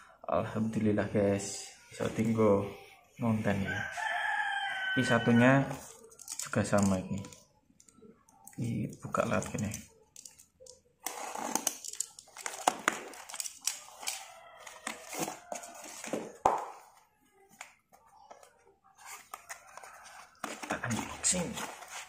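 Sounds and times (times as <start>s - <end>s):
tape and cardboard crinkling: 9.5s - 17.8s, 19.0s - 22.0s
box handling: 11.1s - 16.6s, 19.0s - 22.0s.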